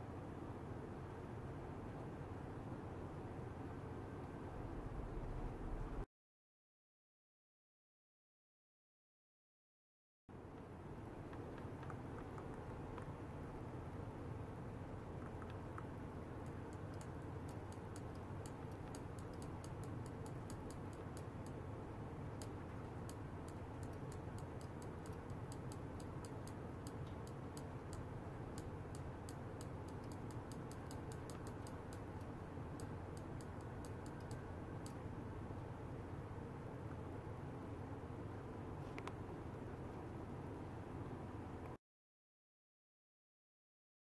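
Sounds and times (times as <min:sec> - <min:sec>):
low hum: 0:00.0 - 0:06.1
faint high-pitched clicks: 0:22.4 - 0:35.0.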